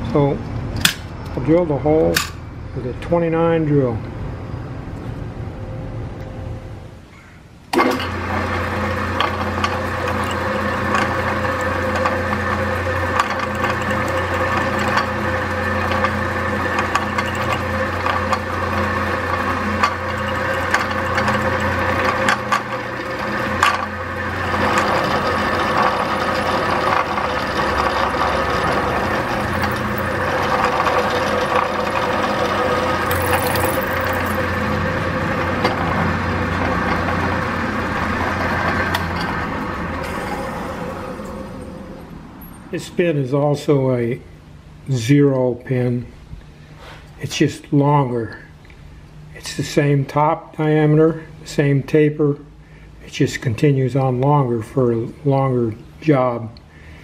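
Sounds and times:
drill press humming: 7.7 - 42.8
drill boring into metal: 7.8 - 42.0.

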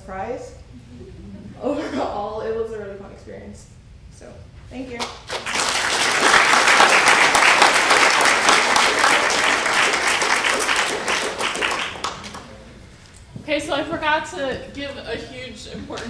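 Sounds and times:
audience applauding: 5.2 - 12.6.

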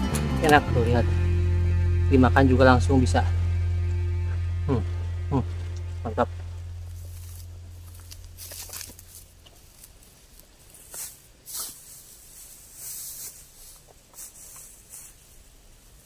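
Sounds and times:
low hum: 0.0 - 10.8
footsteps in dry straw stubble: 6.4 - 16.0.

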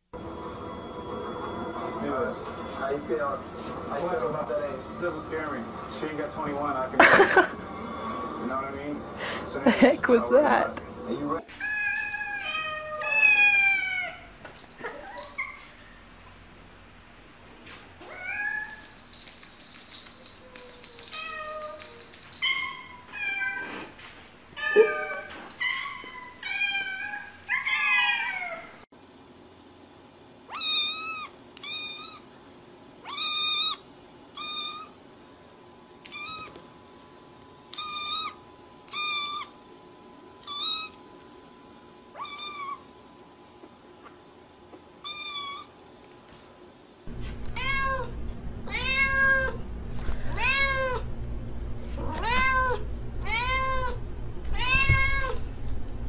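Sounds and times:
cats meowing: 11.5 - 14.3, 24.6 - 28.8, 42.2 - 42.8, 47.2 - 49.6, 50.2 - 51.1, 51.9 - 55.5
steady low hum: 47.1 - 56.0.

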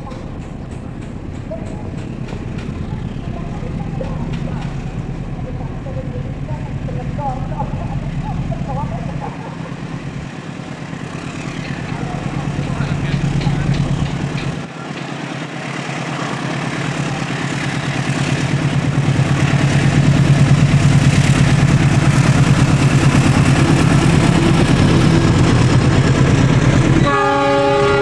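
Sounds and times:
locomotive engine drone: 0.0 - 28.0
locomotive horn: 27.0 - 28.0.

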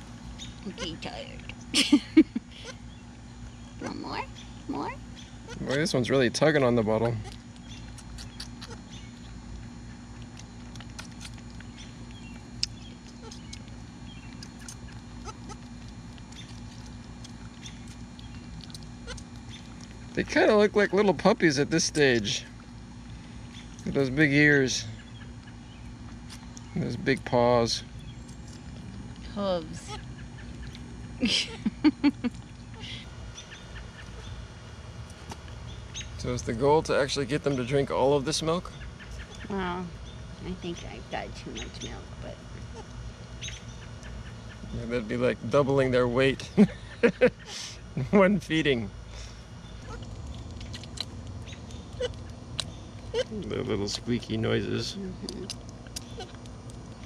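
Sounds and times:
faint steady hum: 0.0 - 57.0
goat kids sucking bottles: 7.0 - 9.1
goat kid squealing: 8.0 - 8.8, 14.5 - 15.6, 19.0 - 19.2, 51.9 - 52.2
slurping hiss: 47.5 - 47.8.

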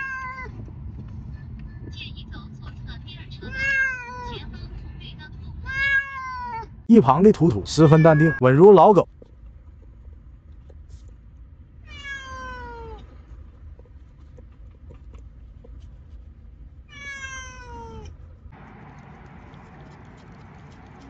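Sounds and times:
cat meowing: 0.0 - 0.5, 3.4 - 4.4, 5.6 - 6.7, 7.8 - 8.4, 11.8 - 13.0, 16.9 - 18.1.

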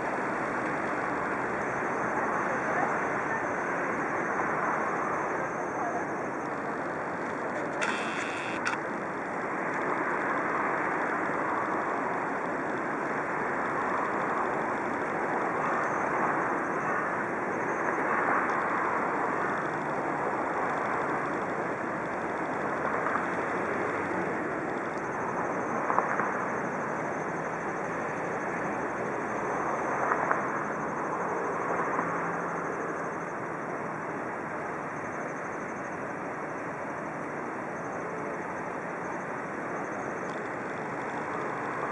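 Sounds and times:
short clicks: 7.7 - 8.8.

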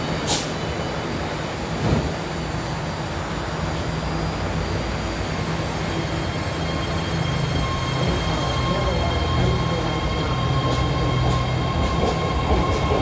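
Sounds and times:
train doors shutting: 0.0 - 2.8, 5.7 - 13.0
electric train motor humming: 2.5 - 13.0.

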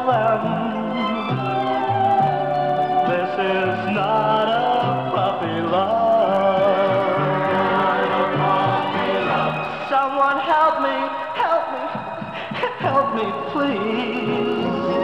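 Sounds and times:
band playing: 0.0 - 15.0
bass line: 1.3 - 9.9
man singing a slow ballad: 3.1 - 7.3, 12.6 - 15.0.

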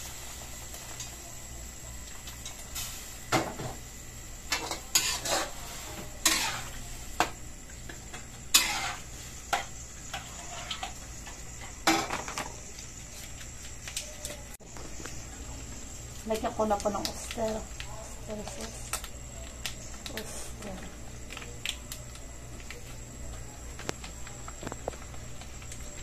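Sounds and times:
metal utensil scraping a pan: 4.5 - 6.8, 8.5 - 11.0.

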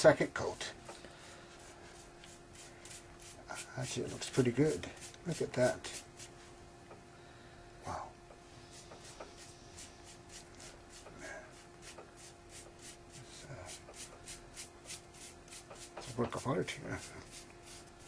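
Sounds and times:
faint steady hum: 0.0 - 18.0
brush strokes: 1.4 - 6.4, 8.6 - 18.0.

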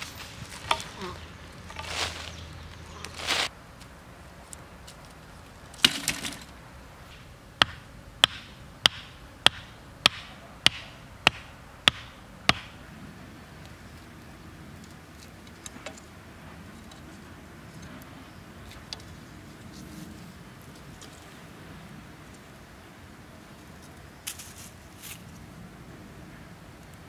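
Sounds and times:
soil scraped and tossed: 0.0 - 3.5
bamboo pole knocking: 7.1 - 12.8.

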